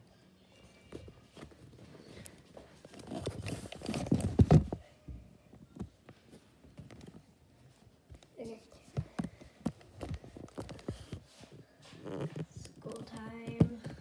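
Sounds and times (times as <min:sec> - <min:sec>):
rubbing and thumps: 0:02.8 - 0:04.8, 0:08.8 - 0:11.4.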